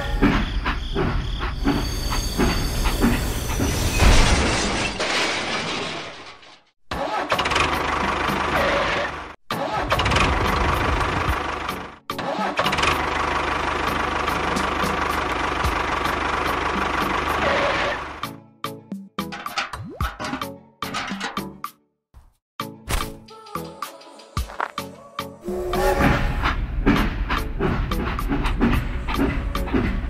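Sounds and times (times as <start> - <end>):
tractor engine running: 7.0 - 18.3.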